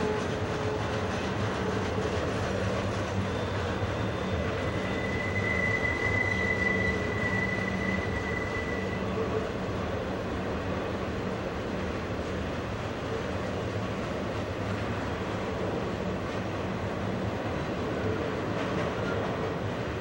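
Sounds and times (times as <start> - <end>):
high wheel squeal: 1.6 - 9.8.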